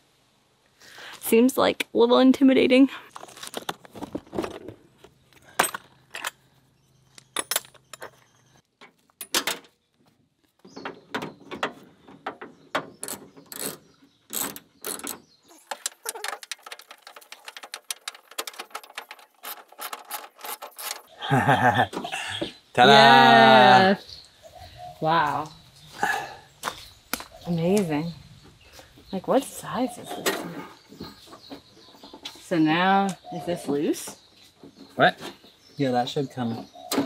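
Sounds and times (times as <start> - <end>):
hand tool clicking and clanking: 5.5 - 6.4, 7.1 - 8.3, 10.8 - 21.2
door latch parts rattling: 7.2 - 8.3, 10.8 - 21.2.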